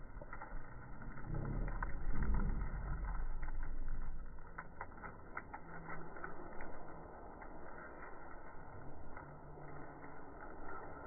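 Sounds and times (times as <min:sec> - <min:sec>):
low rumble: 0:00.0 - 0:11.0.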